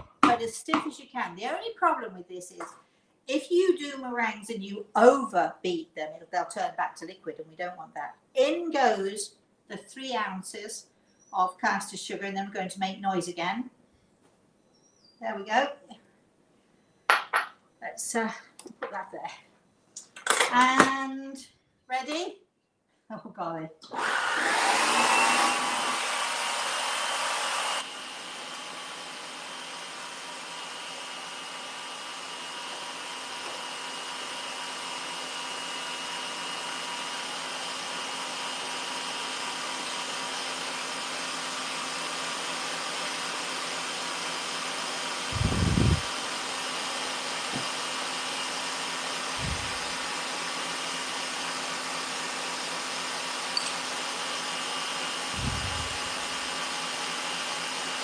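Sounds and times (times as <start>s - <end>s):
stand mixer whirring: 24.0s - 58.0s.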